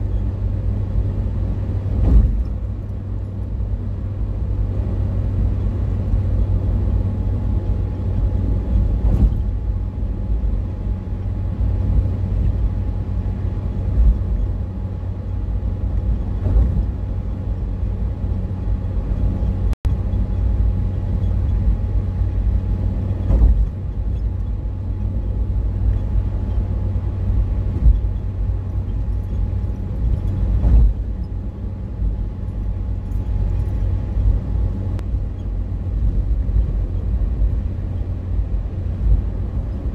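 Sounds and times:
car road noise rumble: 0.0s - 39.9s
car thumps: 2.0s - 2.6s, 23.2s - 23.7s.

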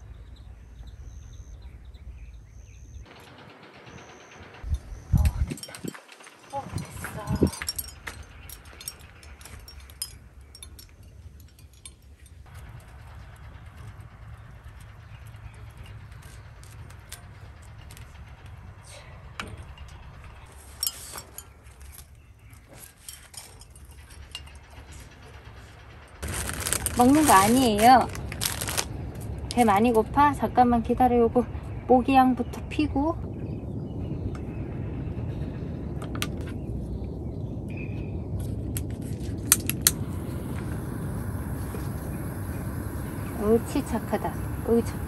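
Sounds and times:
low steady rumble: 0.0s - 45.0s
objects clinking and knocking: 5.2s - 13.0s, 19.4s - 25.6s.

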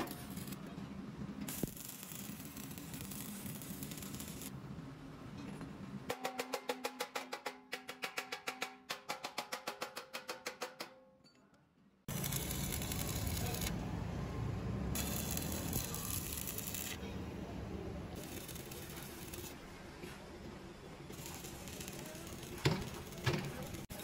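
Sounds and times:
stick welding crackle and hiss: 0.0s - 4.6s, 12.1s - 13.8s, 14.9s - 17.1s, 18.1s - 19.7s, 21.0s - 24.0s
hammer tapping steel tank: 6.1s - 11.1s.

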